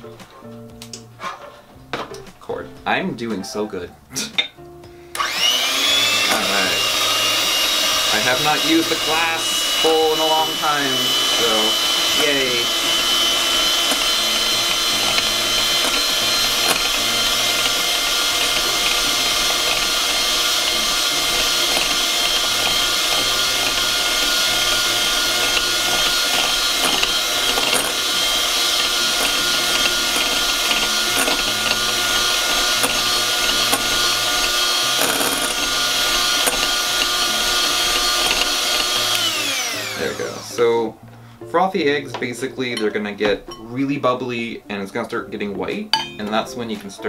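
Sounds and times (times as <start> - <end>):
electric hand mixer whisking: 5.2 - 40.8.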